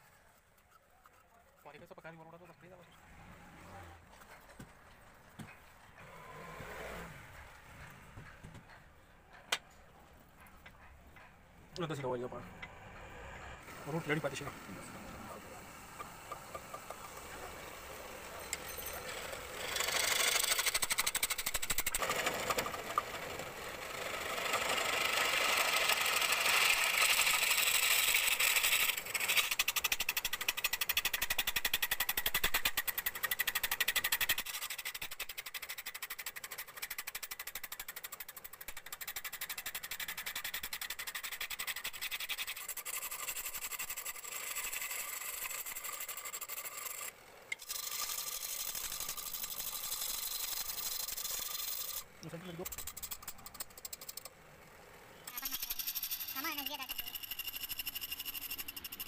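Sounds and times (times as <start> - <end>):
chisel scraping spinning wood: 13.6 - 54.3, 55.1 - 59.0.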